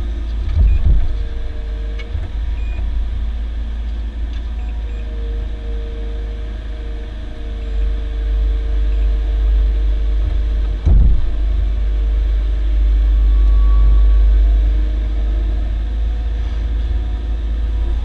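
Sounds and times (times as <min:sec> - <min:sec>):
excavator engine and hydraulics rumble: 0:00.0 - 0:18.0.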